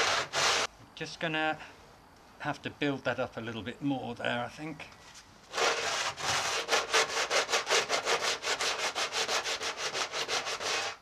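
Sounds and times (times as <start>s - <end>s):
sanding sponge scratching: 0.0s - 0.7s, 5.5s - 11.0s.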